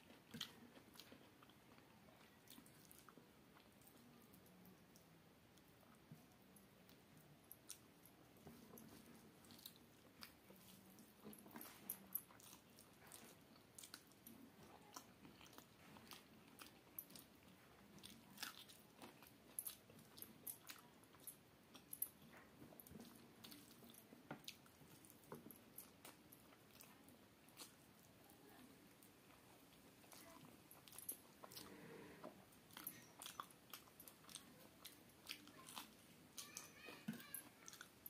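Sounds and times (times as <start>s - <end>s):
chewing and crunchy bites: 0.0s - 4.2s, 8.5s - 28.1s, 29.0s - 38.0s.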